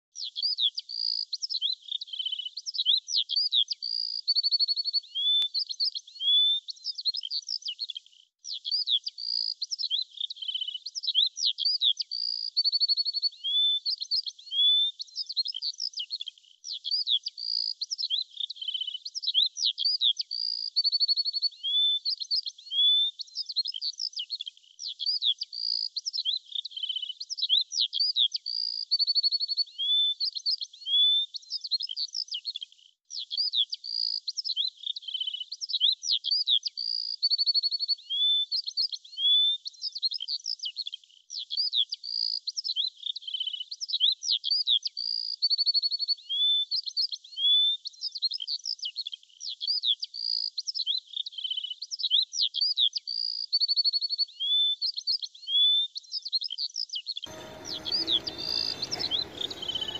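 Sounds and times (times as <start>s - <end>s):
birds chirping and trilling: 57.3s - 59.9s.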